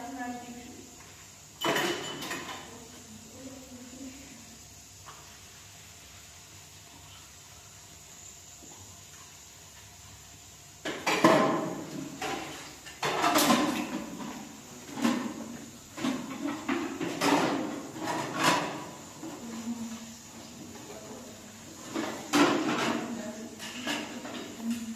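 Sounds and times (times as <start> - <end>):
objects knocking and clattering: 1.6 - 2.7, 10.8 - 19.6, 21.7 - 24.9.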